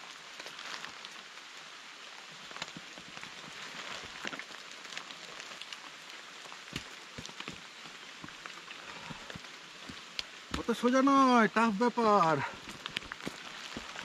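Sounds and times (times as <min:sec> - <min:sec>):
steady rain falling: 0:00.0 - 0:14.0
raindrop ticks: 0:02.5 - 0:14.0.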